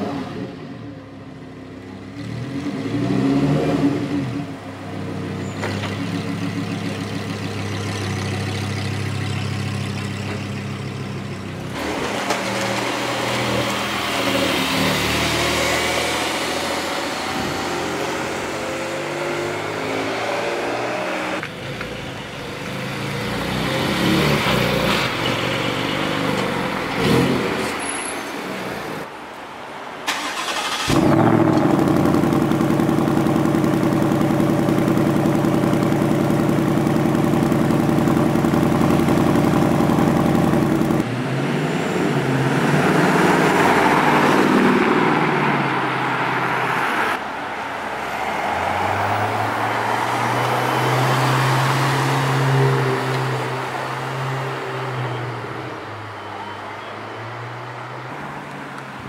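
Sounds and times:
car engine starting and idling: 30.0s - 41.1s
car pulling away: 30.1s - 46.6s
car engine at low revs: 31.0s - 41.0s.

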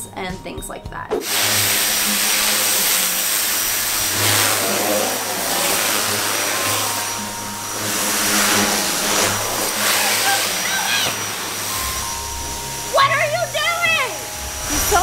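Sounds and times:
pressure washer spraying water: 1.2s - 15.0s
low motor hum: 3.6s - 13.5s.

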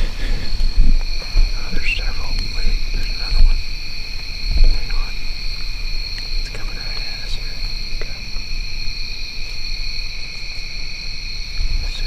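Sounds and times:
low rumble: 0.0s - 8.8s
high-pitched insect drone: 0.0s - 12.0s
faint clicks: 4.6s - 8.5s.

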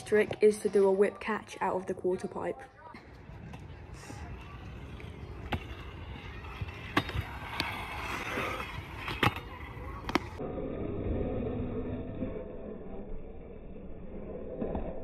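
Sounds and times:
scooter wheels rolling on concrete: 0.0s - 10.4s.

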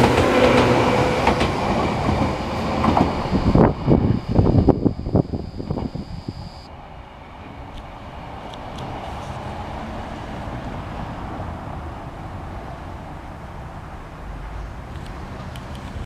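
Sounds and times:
train rumbling: 0.0s - 13.9s
car driving past: 8.0s - 15.5s.

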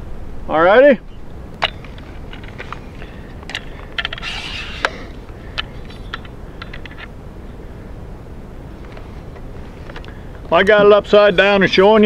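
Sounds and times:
tripod leg clicks and rattles: 1.5s - 7.2s, 8.8s - 10.5s
short scrape: 4.1s - 5.2s.

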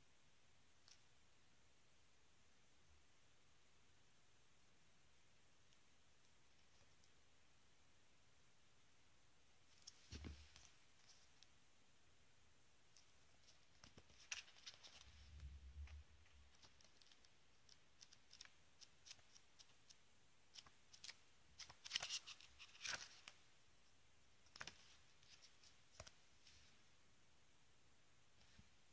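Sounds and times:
paper pages rustling: 13.4s - 15.3s, 20.6s - 23.4s, 24.5s - 26.2s.

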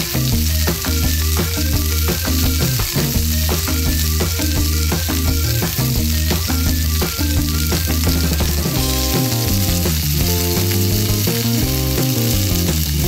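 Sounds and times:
background music with beat: 0.0s - 13.0s.

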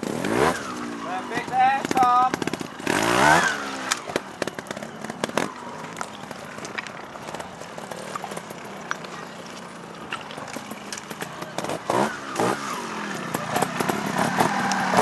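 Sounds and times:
motorcycle engine revving: 0.0s - 9.0s, 10.6s - 15.0s.

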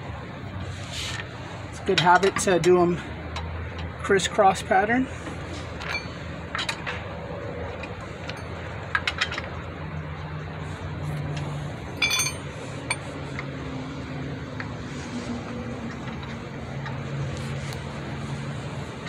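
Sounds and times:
ringing clink of metal on metal: 12.0s - 12.4s.

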